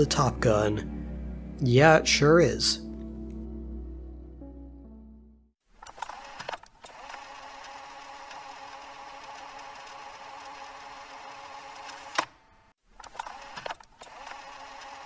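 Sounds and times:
machine hum: 0.0 - 5.4.

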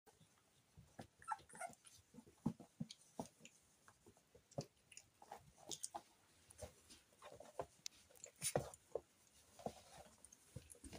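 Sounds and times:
puppies scuffling: 0.1 - 10.9
puppy squeaks and whimpers: 1.2 - 2.0.

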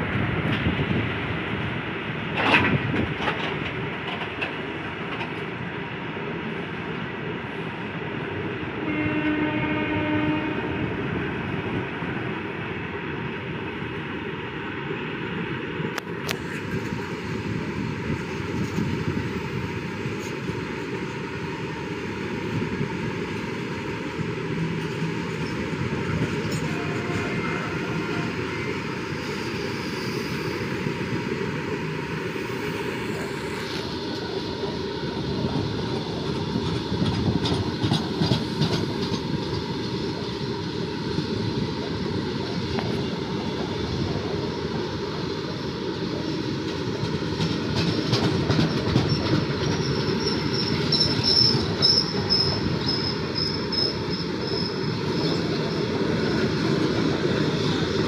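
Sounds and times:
train wheels rumbling on rails: 0.0 - 58.0
train horn: 8.8 - 11.0, 26.5 - 28.7.

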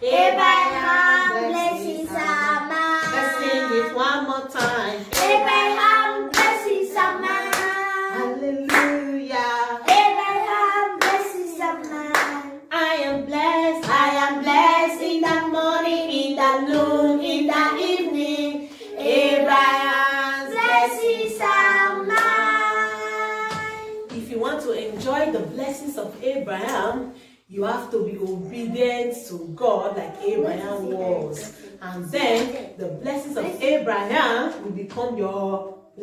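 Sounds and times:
woman and children singing: 0.0 - 36.0
hands clapping: 4.6 - 5.5, 6.3 - 6.6, 7.5 - 7.8, 8.7 - 9.0, 11.0 - 12.4, 22.1 - 22.6.

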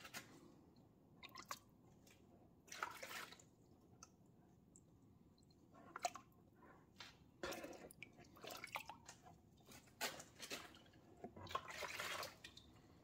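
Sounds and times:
water pouring and splashing: 1.2 - 3.7, 7.4 - 13.0.

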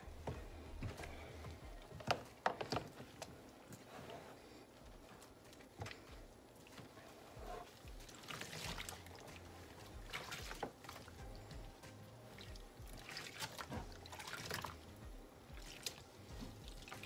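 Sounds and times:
faint background music with beat: 0.0 - 3.1, 6.0 - 17.0
water sloshing in plastic tub: 5.2 - 14.9.

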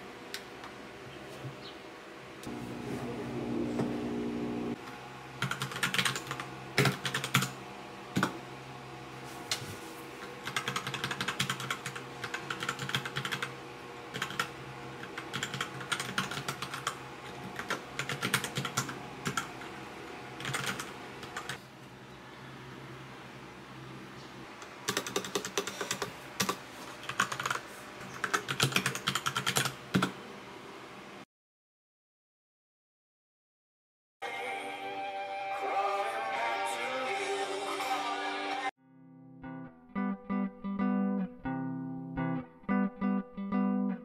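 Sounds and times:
mechanical keyboard typing: 5.4 - 7.6, 10.4 - 13.5, 14.1 - 19.5, 20.4 - 21.6, 24.8 - 27.6, 28.2 - 30.1.

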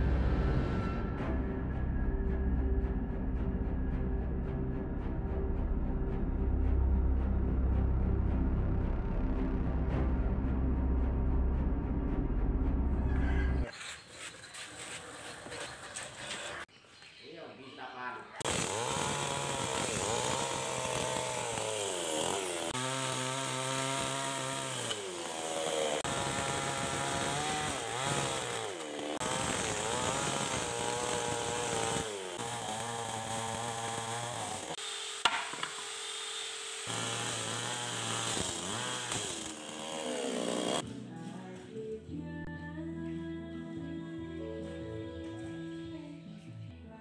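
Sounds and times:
chainsaw cutting wood: 18.4 - 40.9.

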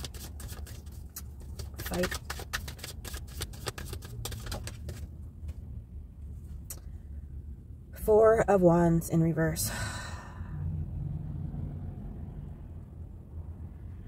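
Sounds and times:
cards being shuffled: 0.0 - 5.6.

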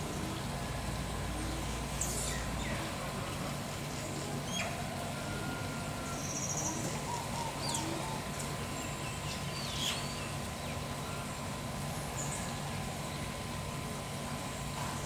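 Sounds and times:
bird trill: 5.4 - 11.3
sharp whistled bird calls: 8.8 - 11.2.

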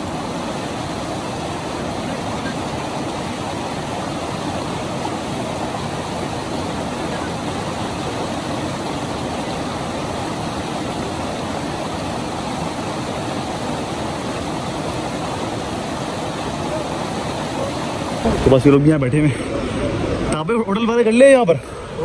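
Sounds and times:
river rushing: 0.0 - 22.0.

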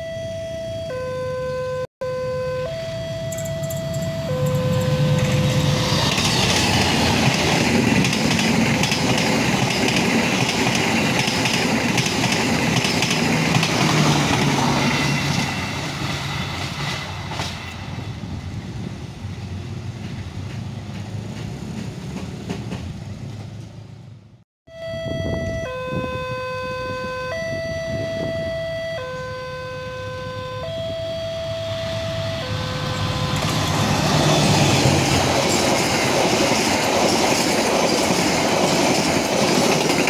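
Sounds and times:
level crossing alarm beeps: 0.0 - 6.2, 24.7 - 33.8
train passing on rails: 2.7 - 24.4, 27.3 - 40.0.

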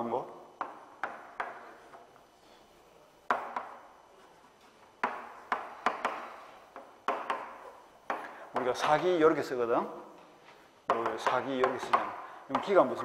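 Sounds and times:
chalk tapping on chalkboard: 0.6 - 2.0, 3.3 - 3.8, 5.0 - 9.1, 10.9 - 13.0.

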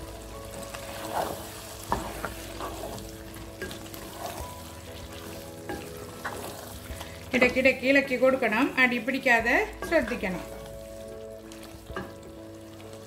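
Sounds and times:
light sizzle: 0.0 - 13.0
wooden spatula scraping a pan: 0.5 - 7.7.

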